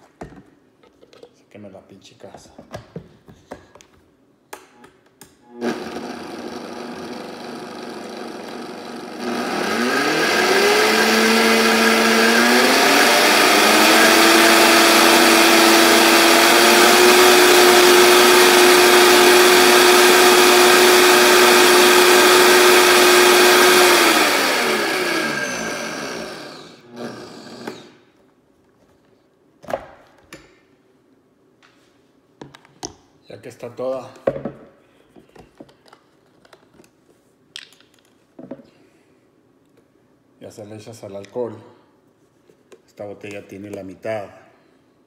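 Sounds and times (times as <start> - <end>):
blender running: 5.5 - 28.0.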